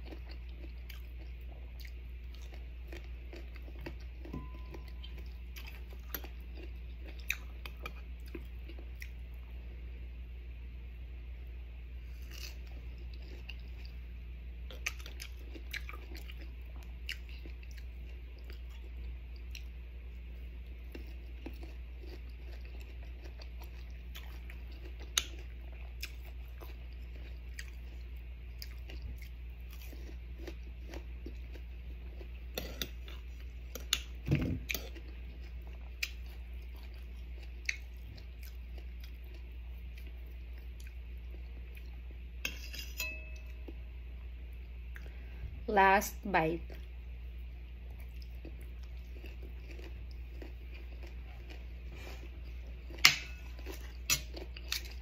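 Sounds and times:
chewing and crunching: 0.0 - 9.6, 12.0 - 14.0, 14.6 - 43.8, 46.6 - 55.0
low hum: 0.0 - 55.0.

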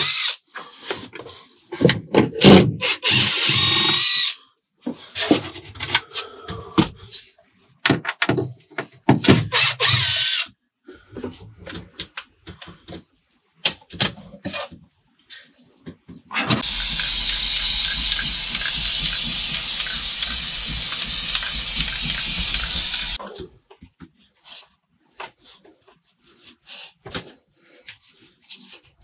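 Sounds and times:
aerosol can hissing: 16.6 - 23.2.

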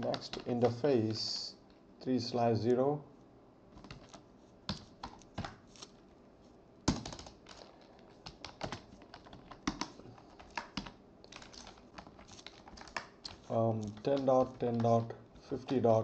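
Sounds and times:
computer keyboard typing: 0.0 - 1.2, 3.8 - 5.6, 6.9 - 16.0.

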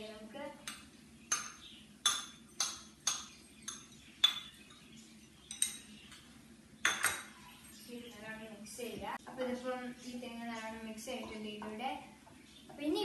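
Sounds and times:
spoon clinking against plate: 0.7 - 4.8, 5.4 - 6.2, 6.8 - 7.4.

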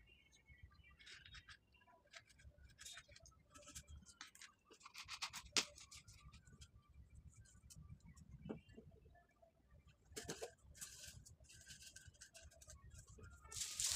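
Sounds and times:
plastic bottle crinkling: 13.5 - 13.9.

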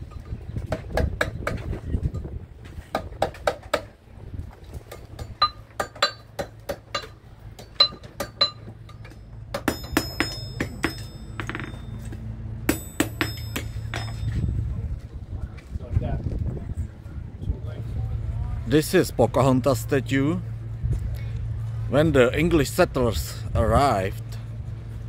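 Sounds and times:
hammer striking iron on anvil: 4.9 - 14.4.

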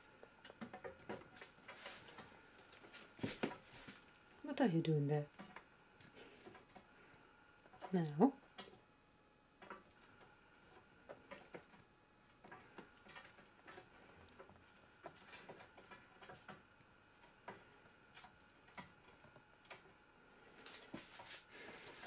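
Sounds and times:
squirrel claws tapping on wire cage: 0.4 - 4.0, 12.4 - 19.9.

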